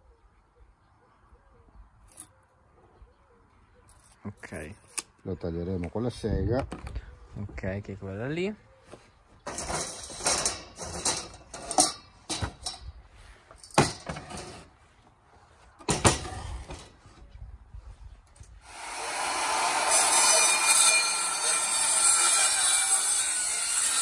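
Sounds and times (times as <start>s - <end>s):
circular saw cutting wood: 18.6s - 24.0s.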